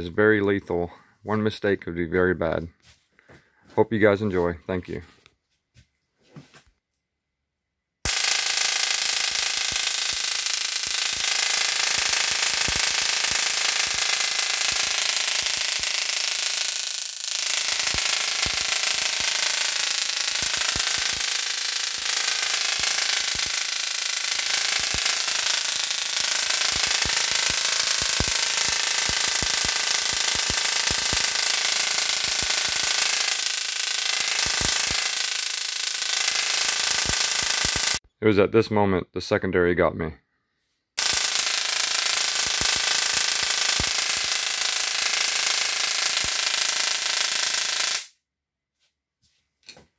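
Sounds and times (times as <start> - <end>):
sharp spark snaps: 8.1 - 38.0, 41.0 - 48.1
tesla coil buzzing crackle: 8.1 - 38.0, 41.0 - 48.1.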